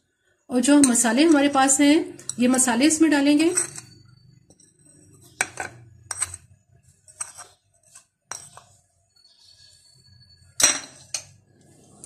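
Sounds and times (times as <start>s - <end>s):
metal spoon clinking on plate: 3.4s - 6.5s, 7.1s - 7.6s, 8.3s - 8.7s, 10.5s - 11.4s.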